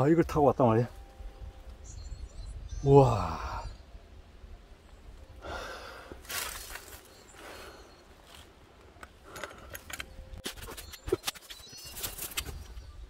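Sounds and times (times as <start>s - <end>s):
wind rumble on microphone: 0.0s - 5.4s
heavy breathing: 5.4s - 6.2s
scuffing footsteps: 6.2s - 7.1s.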